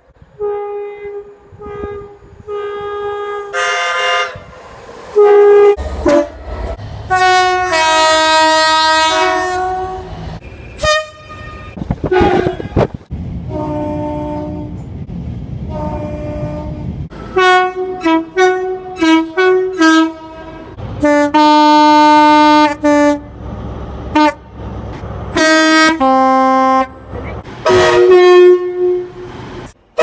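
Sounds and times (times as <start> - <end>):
moving train rumble: 0.0 - 30.0
two-tone train horn: 0.3 - 4.5, 5.1 - 6.4, 7.1 - 10.1, 10.8 - 12.9, 13.5 - 14.8, 15.7 - 23.3, 24.1 - 24.5, 25.3 - 29.3.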